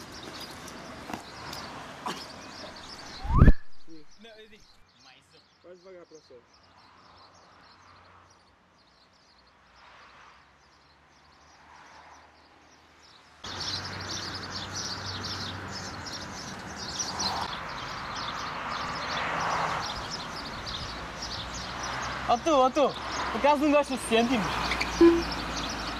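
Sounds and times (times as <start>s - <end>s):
small birds chirping: 0.0s - 25.9s.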